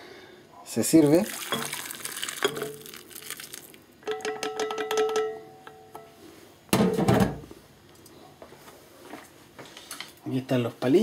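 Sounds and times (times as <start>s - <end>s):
metal pot knocking on ceramic bowl: 4.0s - 5.4s.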